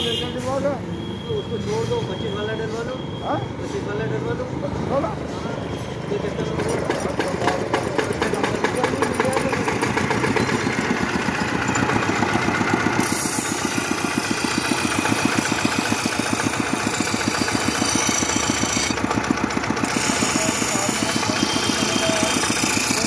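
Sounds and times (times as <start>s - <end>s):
stationary engine chugging: 6.4s - 23.0s
metal blade grinding: 10.0s - 19.1s, 19.8s - 23.0s.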